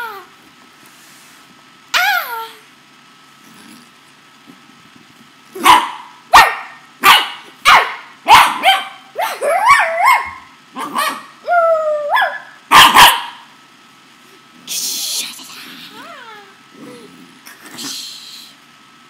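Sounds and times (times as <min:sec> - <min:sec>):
puppy barking: 0:05.6 - 0:11.3, 0:12.1 - 0:13.5
puppy howling: 0:08.6 - 0:13.1.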